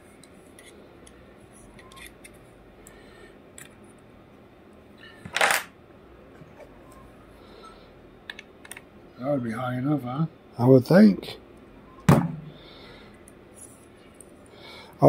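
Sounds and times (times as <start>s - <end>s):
clicks of small parts handled: 5.2s - 5.7s.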